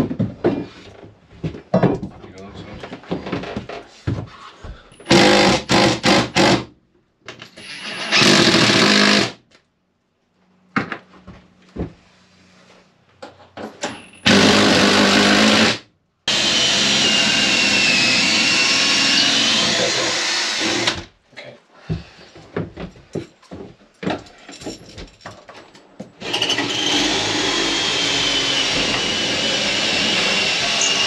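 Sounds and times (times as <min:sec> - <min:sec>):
cordless drill boring into wood: 0:05.1 - 0:06.6, 0:07.6 - 0:09.4, 0:14.2 - 0:21.1, 0:26.2 - 0:31.0.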